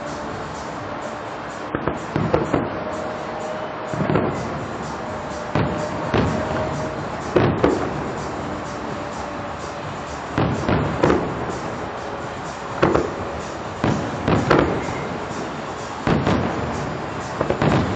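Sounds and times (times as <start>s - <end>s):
background hiss: 0.0s - 17.9s
distant fireworks booming: 0.0s - 17.9s.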